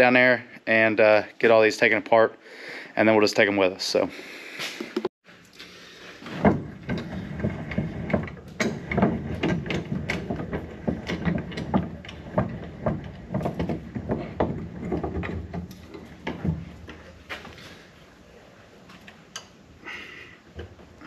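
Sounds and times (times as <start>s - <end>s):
metal knocking against a vise: 6.4s - 17.0s.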